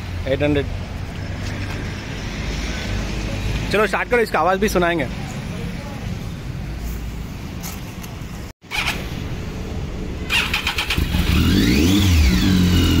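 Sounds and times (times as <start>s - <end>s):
motorcycle engine starting: 8.6s - 9.5s, 10.2s - 13.0s.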